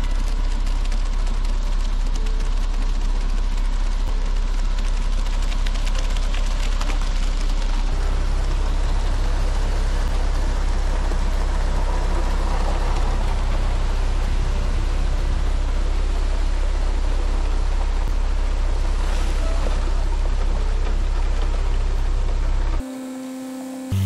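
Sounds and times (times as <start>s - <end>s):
wet concrete sliding and spattering: 0.0s - 10.4s
truck engine droning: 0.0s - 24.0s.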